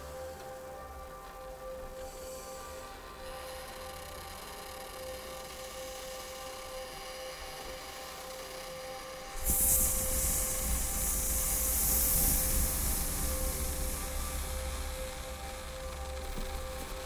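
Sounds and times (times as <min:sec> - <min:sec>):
electronic drone tone: 0:07.9 - 0:17.0
loud hissing noise: 0:09.2 - 0:16.7.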